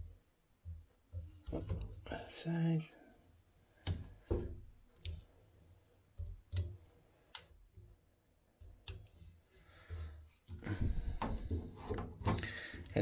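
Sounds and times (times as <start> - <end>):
sharp clicks and light knocks: 3.8 - 5.4, 6.1 - 8.0, 8.6 - 9.4.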